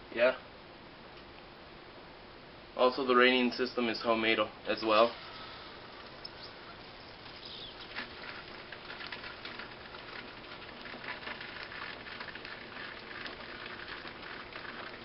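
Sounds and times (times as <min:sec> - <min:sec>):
water droplets pattering on leaves: 0:06.3 - 0:15.0.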